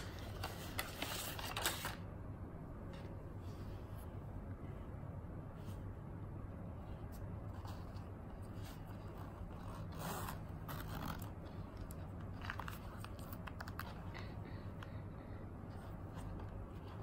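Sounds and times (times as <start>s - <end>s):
low steady hum: 0.0s - 17.0s
zipper opening: 8.6s - 11.5s.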